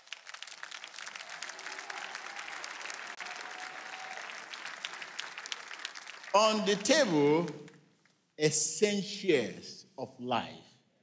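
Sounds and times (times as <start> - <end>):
congregation applauding: 0.0 - 8.1.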